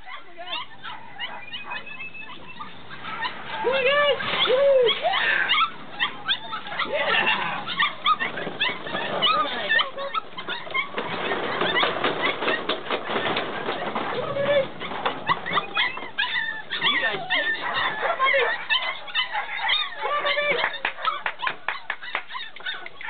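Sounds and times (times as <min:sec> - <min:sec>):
puppies yipping and whining: 0:00.0 - 0:23.0
plastic balls clattering: 0:08.2 - 0:16.1.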